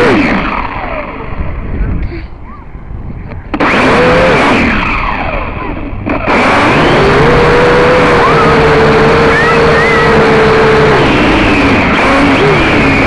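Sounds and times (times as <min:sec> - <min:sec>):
toy drone motors whirring: 0:03.5 - 0:13.0.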